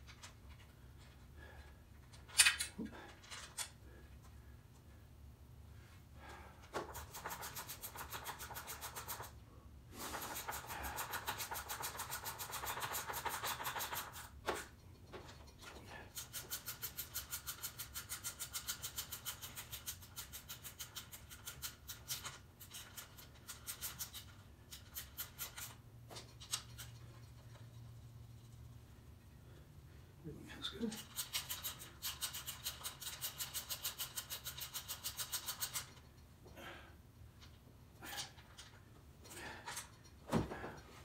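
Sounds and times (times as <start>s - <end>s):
ratchet wrench clicking: 31.0s - 36.0s.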